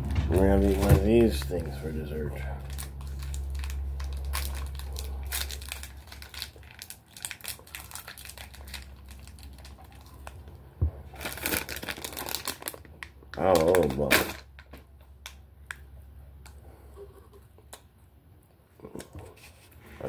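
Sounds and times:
low hum: 0:00.0 - 0:11.9
wrapper crinkling and tearing: 0:00.3 - 0:14.8.

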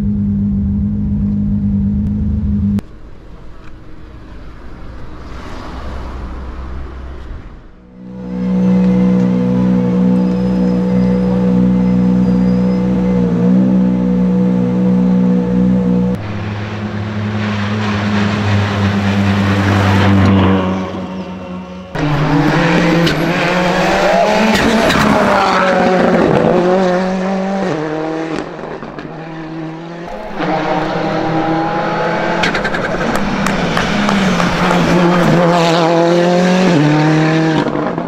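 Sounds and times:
rally car engine revving: 0:07.9 - 0:38.0.

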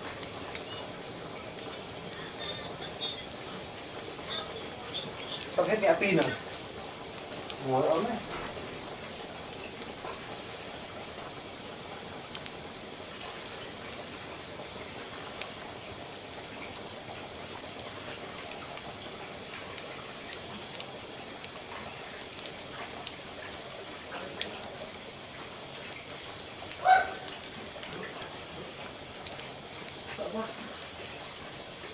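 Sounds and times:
cricket trilling: 0:00.0 - 0:31.9
wood fire crackling: 0:00.0 - 0:31.9.

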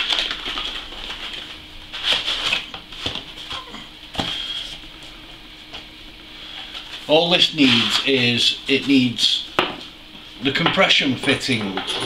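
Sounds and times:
packaging rustling: 0:00.0 - 0:03.6.

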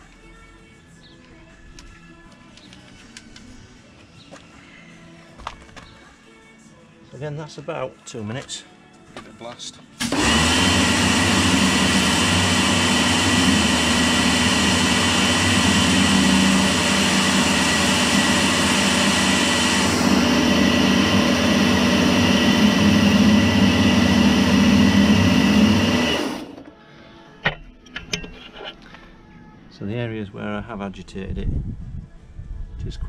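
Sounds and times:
pump motor humming: 0:10.0 - 0:26.7.

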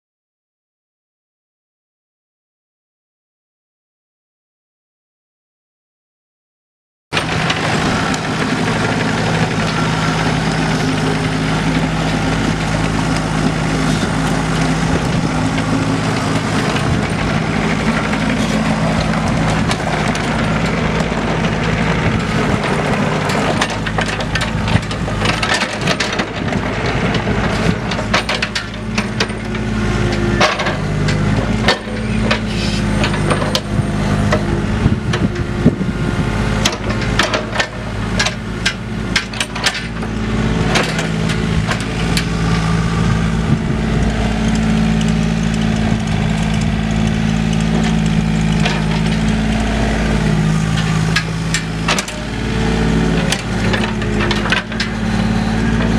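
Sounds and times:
diesel excavator engine running: 0:07.2 - 0:55.9
sharp metal clanks and knocks: 0:50.8 - 0:52.4.

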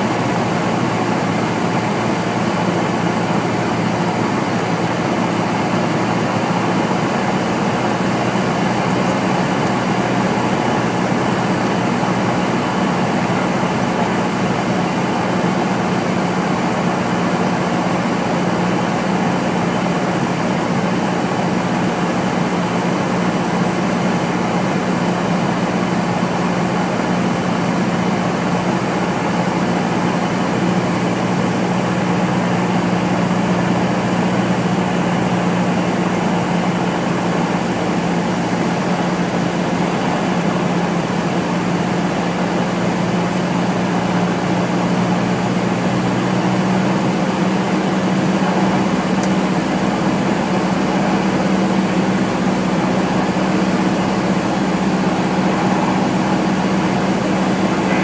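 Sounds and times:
airplane engine and propeller droning: 0:00.0 - 0:58.0.

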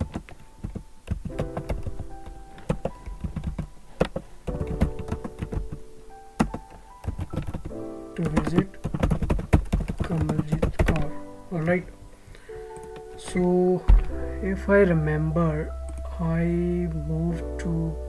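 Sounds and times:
keyboard typing: 0:00.0 - 0:11.3
background music with held notes: 0:00.0 - 0:18.0.

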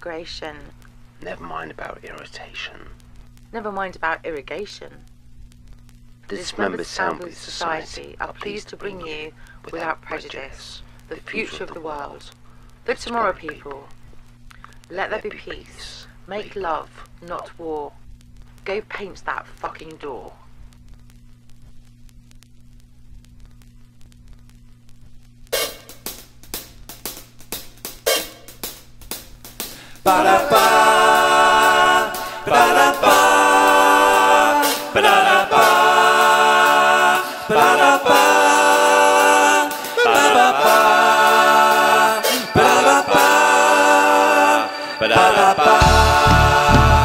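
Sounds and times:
wordless vocal singing: 0:29.8 - 0:47.0.

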